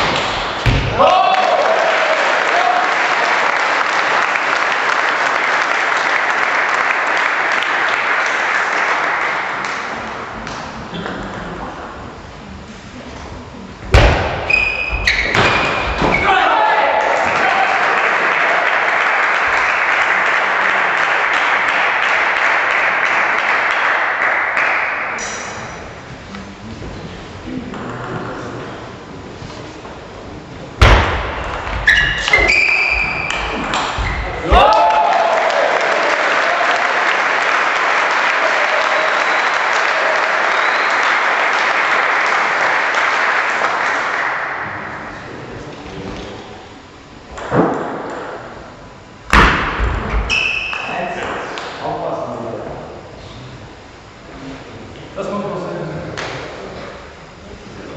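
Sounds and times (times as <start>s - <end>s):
spectators clapping: 0.0s - 10.8s, 16.3s - 25.6s, 33.2s - 45.1s
audience applauding: 1.2s - 10.2s, 16.5s - 25.2s, 33.3s - 44.8s.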